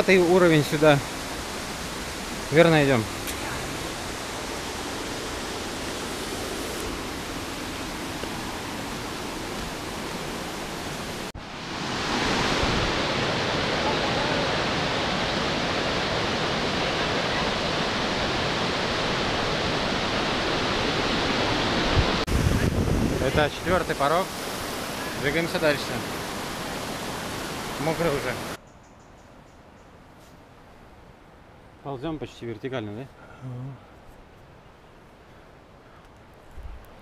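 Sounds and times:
waterfall and stream rushing: 0:00.0 - 0:28.6.

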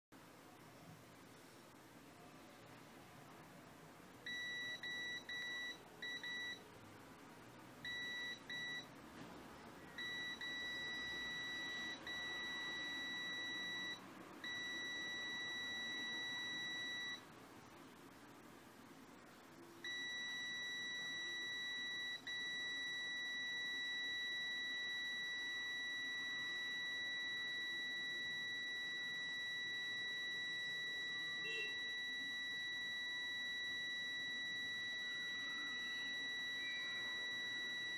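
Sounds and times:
multimeter continuity beeping: 0:04.2 - 0:06.7, 0:07.8 - 0:08.9, 0:09.9 - 0:17.3, 0:19.8 - 0:37.9.

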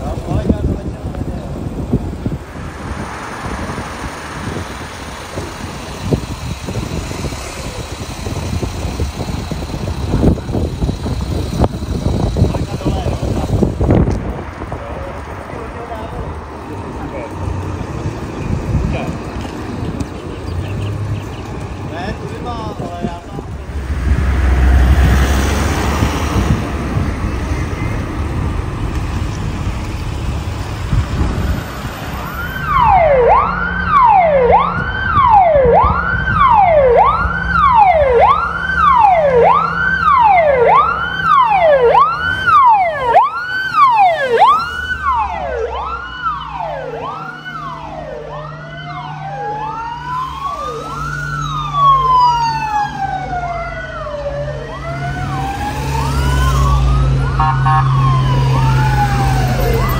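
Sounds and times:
engine rumble: 0:00.0 - 0:59.9
vehicle siren wailing: 0:31.5 - 0:59.9.

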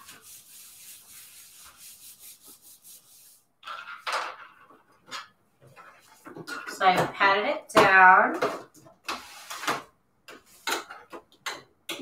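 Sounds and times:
hands rubbing paper: 0:00.0 - 0:03.5.

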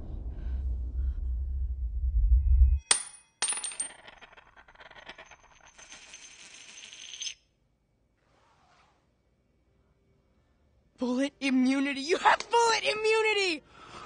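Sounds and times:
low rumble: 0:00.0 - 0:02.9
bullet clinking on tile floor: 0:02.8 - 0:07.5
bullet rattling and spinning on tile: 0:02.9 - 0:07.5.

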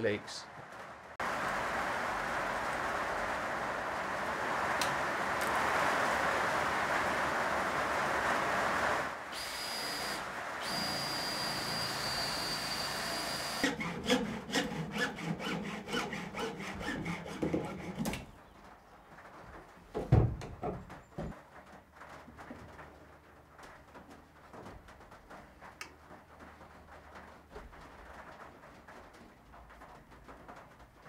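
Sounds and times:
steady rush of noise: 0:00.0 - 0:12.3
cordless drill whining: 0:09.3 - 0:17.0
hacksaw cutting plastic pipe: 0:10.6 - 0:18.2
thump: 0:20.0 - 0:21.4.

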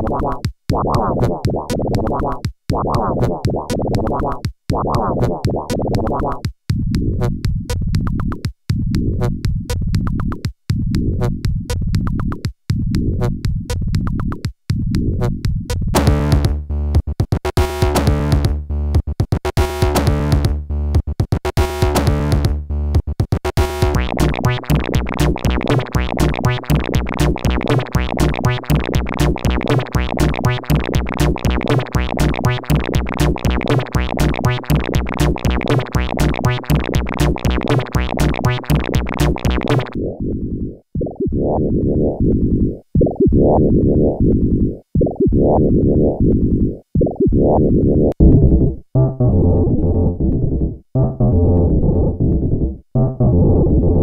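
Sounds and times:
fast repeating synth pulses: 0:23.3 - 0:54.0
muffled low synth line: 0:24.0 - 0:54.0.

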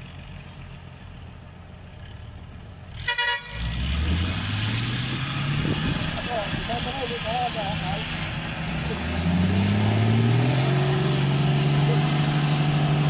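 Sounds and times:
truck engine revving: 0:00.0 - 0:13.0
truck engines running: 0:00.0 - 0:13.0
truck horn toot: 0:03.0 - 0:04.1.

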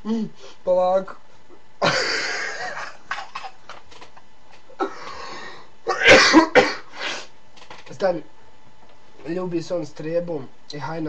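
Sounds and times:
man's wheezing laughter: 0:01.8 - 0:03.6.

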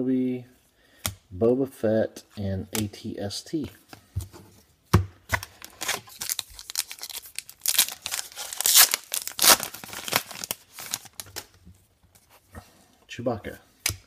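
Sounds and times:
foil wrapper tearing and crinkling: 0:05.6 - 0:11.5.

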